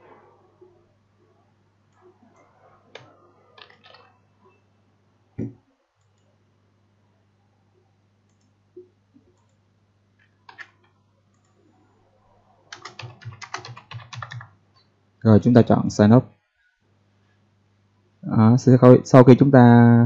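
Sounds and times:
faint steady hum: 0:00.0 - 0:20.0
computer mouse clicks: 0:01.9 - 0:04.1, 0:05.4 - 0:06.3, 0:08.3 - 0:09.6, 0:10.2 - 0:11.6.

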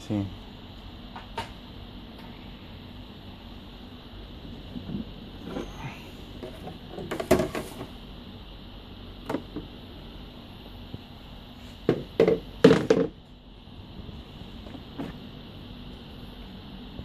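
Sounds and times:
knocks and clunks of machine parts: 0:11.9 - 0:13.2.

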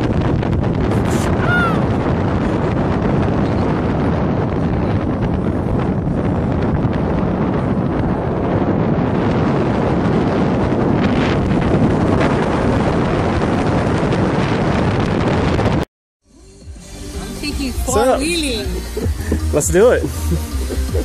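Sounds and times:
wind buffeting microphone: 0:00.0 - 0:15.8, 0:17.4 - 0:21.0
car engine: 0:16.2 - 0:21.0.

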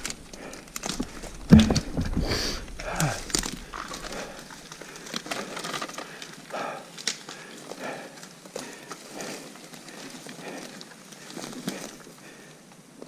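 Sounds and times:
branches cracking and scraping: 0:00.0 - 0:13.0
heavy thump: 0:01.2 - 0:03.2
knocks: 0:01.5 - 0:02.3.

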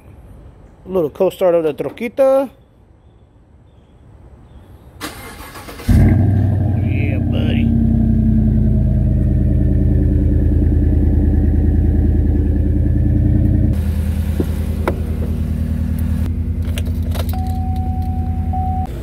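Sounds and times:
truck engine idling: 0:06.2 - 0:19.0.

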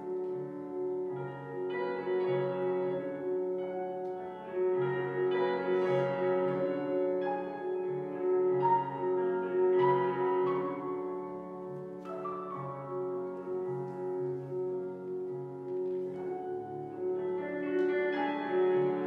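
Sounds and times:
slow classical piano: 0:00.0 - 0:19.0.

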